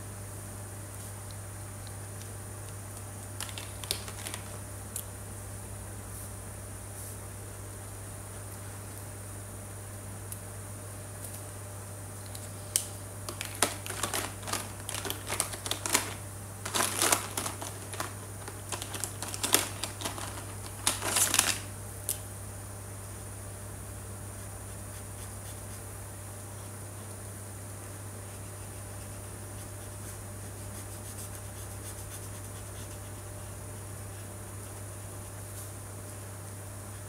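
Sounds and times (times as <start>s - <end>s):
low electrical hum: 0.0s - 37.0s
plastic marker pens clattering: 3.4s - 4.6s, 13.3s - 21.7s.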